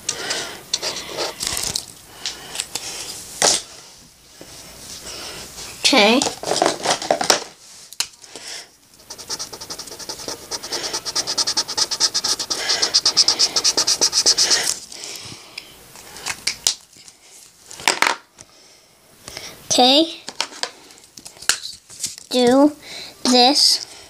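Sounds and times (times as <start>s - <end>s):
scribbling on paper: 9.0s - 14.8s.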